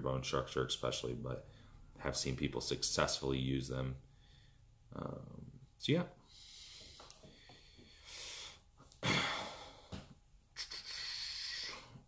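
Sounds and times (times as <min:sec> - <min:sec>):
man breathing: 0:04.1 - 0:04.8, 0:06.2 - 0:10.2.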